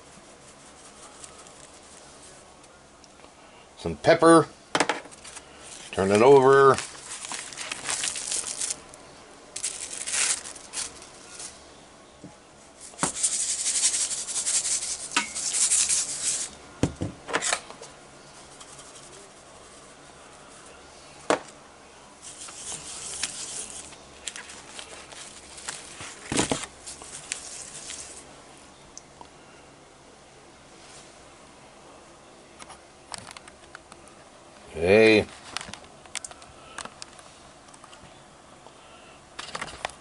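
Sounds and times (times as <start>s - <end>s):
salt and pepper shaker rattling: 6.9s - 8.8s, 9.6s - 11.5s, 12.9s - 16.5s, 22.2s - 25.7s, 26.8s - 28.2s.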